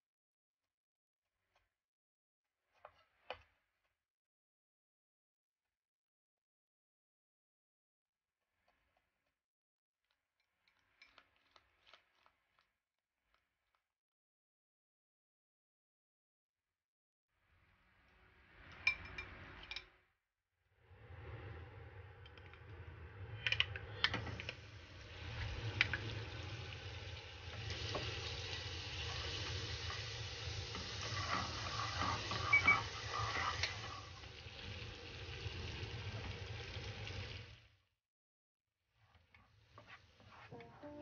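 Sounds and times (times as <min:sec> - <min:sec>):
butter sizzling in a frying pan: 0:24.6 - 0:37.7
wooden spoon scraping a pan: 0:29.0 - 0:34.2.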